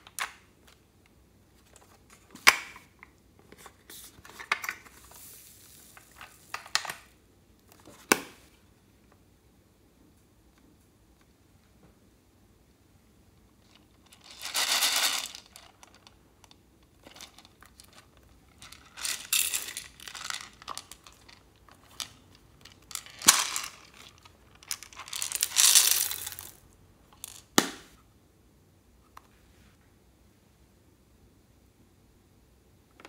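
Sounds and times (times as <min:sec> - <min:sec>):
plastic beads pouring into glass dish: 0:05.1 - 0:06.6, 0:14.2 - 0:15.7, 0:18.6 - 0:21.4, 0:22.8 - 0:26.6.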